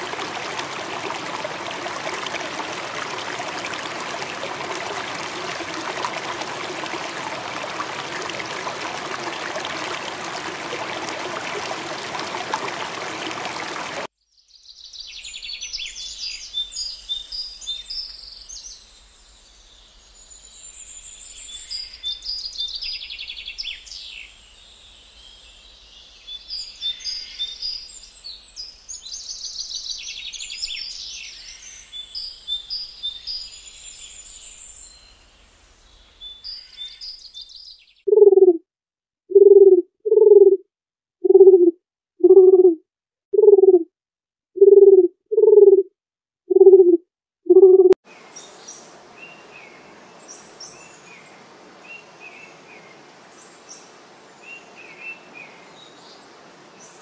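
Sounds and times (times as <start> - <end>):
running water rushing: 0.0 - 14.1.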